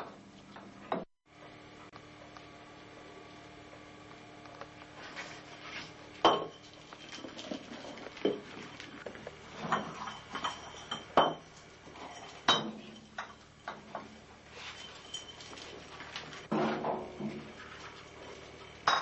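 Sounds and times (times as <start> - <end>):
glass bottles knocking and clinking: 6.2 - 8.8, 9.5 - 19.0.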